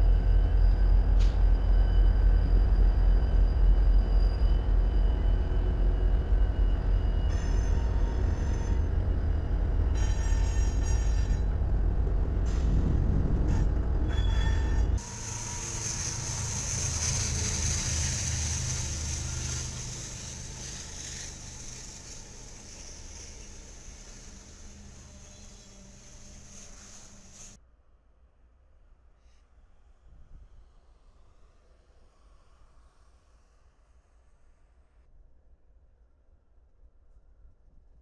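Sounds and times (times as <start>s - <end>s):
train wheels hissing on rails: 0.0s - 11.4s, 12.4s - 13.7s, 14.4s - 27.6s
diesel locomotives rumbling past: 0.0s - 27.6s.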